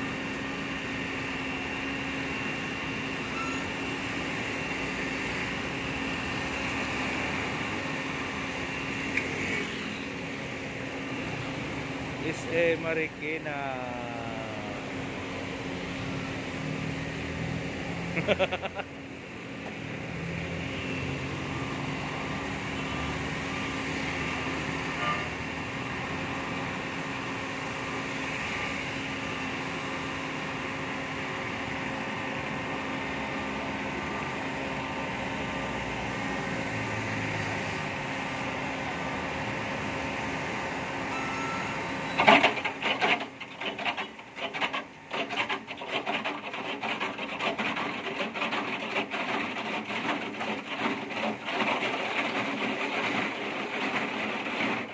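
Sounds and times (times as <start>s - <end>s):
trenching machine sawing pavement: 42.0s - 54.9s.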